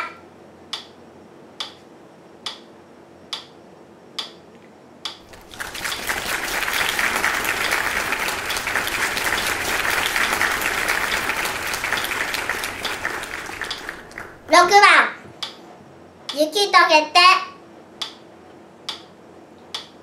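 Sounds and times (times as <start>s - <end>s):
applause: 5.2s - 14.6s.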